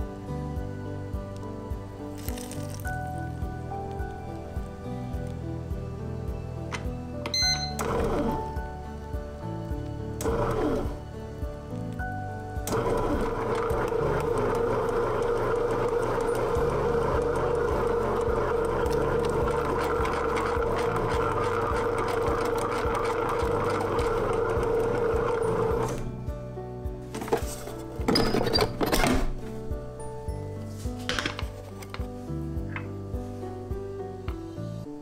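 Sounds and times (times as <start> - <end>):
background music with steady beat: 0.0 - 35.0
bread machine motor whirring: 12.7 - 26.1.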